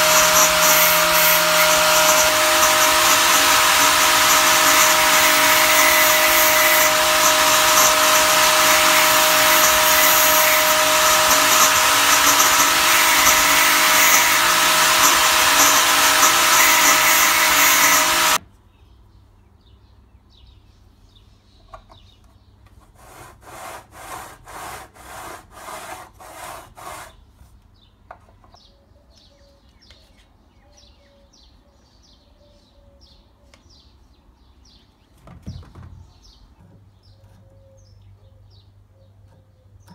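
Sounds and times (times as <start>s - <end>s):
grinder sharpening saw blade: 0.0s - 18.4s
rhythmic scraping strokes: 0.0s - 18.4s.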